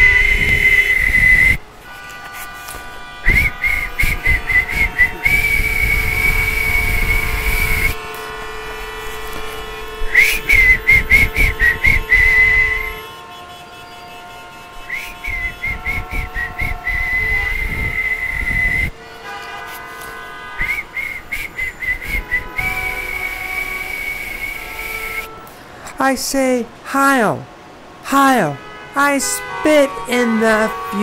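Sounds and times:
shrill whistling: 0.0 - 1.6, 3.3 - 8.0, 10.1 - 13.0, 14.9 - 18.9, 20.6 - 25.4.

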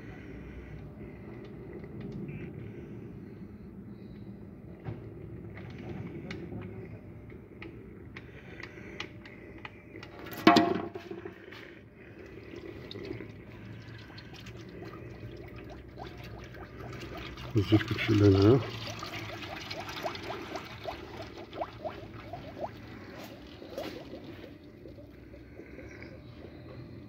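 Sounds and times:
oil pouring trickle: 11.2 - 25.8.

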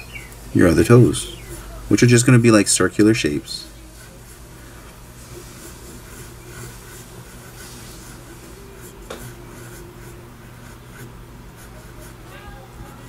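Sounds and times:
pencil scratching on paper: 3.9 - 13.0.

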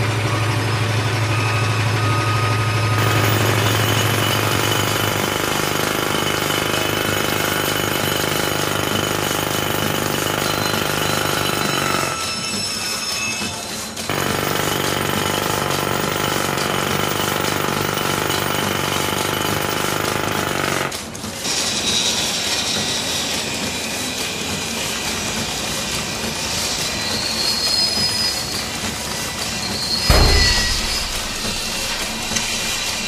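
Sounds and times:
harsh screeching machinery noise: 0.0 - 33.0
steady hiss with whistling tones: 21.4 - 30.1
heavy thump: 30.1 - 33.0.

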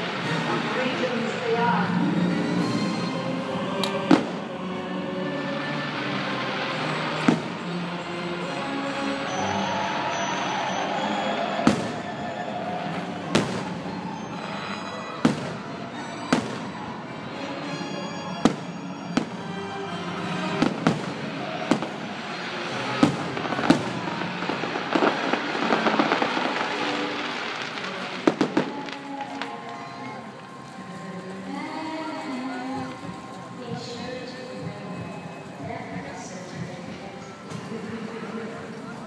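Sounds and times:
fireworks bursting bangs: 0.0 - 17.3, 18.3 - 30.7
fireworks show music: 0.0 - 39.0
fireworks crackling pops: 3.8 - 4.5, 5.4 - 17.1, 18.3 - 34.6.

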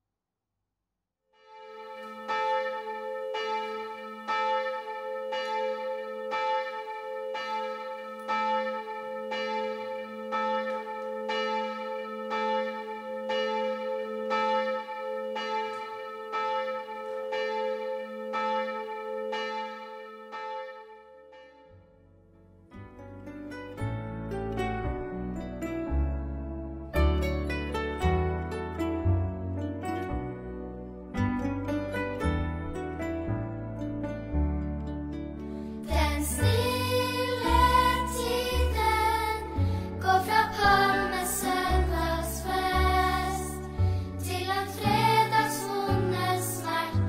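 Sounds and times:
church bell tolling: 1.6 - 22.0, 35.9 - 47.0.

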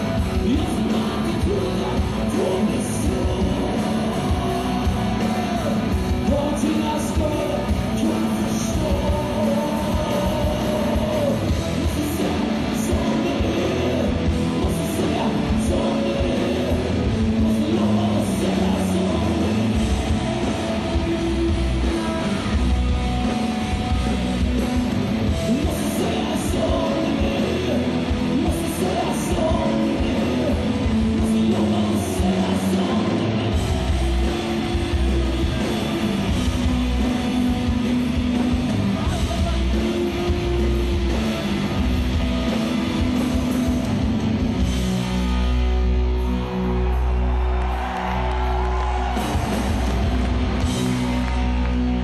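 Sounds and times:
person singing: 0.0 - 22.9, 25.3 - 40.5
bass guitar: 0.0 - 52.0
drums: 0.0 - 52.0
electric guitars: 0.0 - 52.0.

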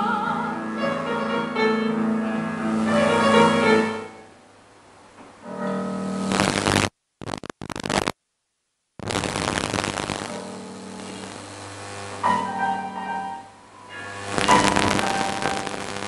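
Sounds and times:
soprano singing: 0.0 - 4.3
art song with piano: 0.0 - 4.4, 12.3 - 15.6
recording crackle: 2.8 - 16.0.

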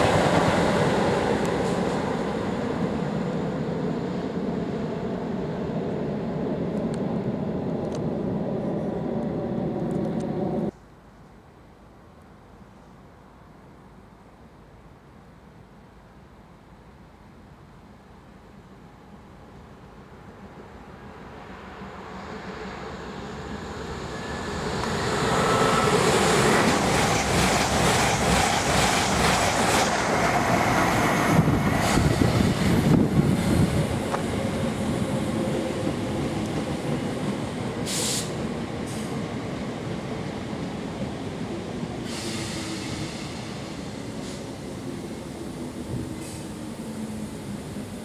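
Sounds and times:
electric train rumble: 0.0 - 11.1, 17.3 - 48.0
brief hisses: 37.9 - 39.2, 42.0 - 43.6, 46.2 - 46.6.

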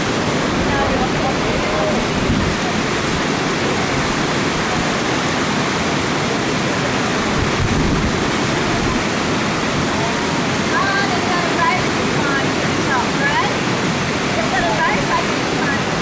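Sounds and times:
water rushing past rocks: 0.0 - 16.0.

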